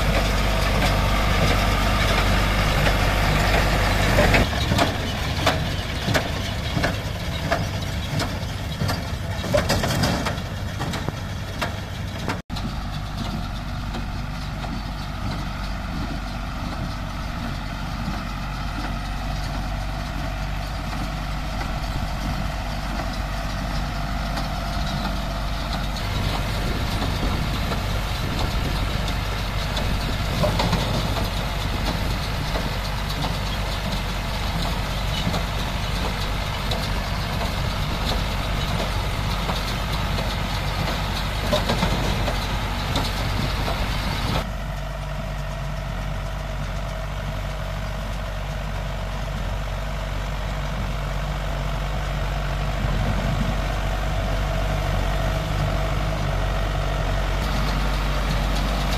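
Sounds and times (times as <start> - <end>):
baler clatter and hiss: 0.0 - 58.9
tractor diesel engine running: 0.0 - 58.9.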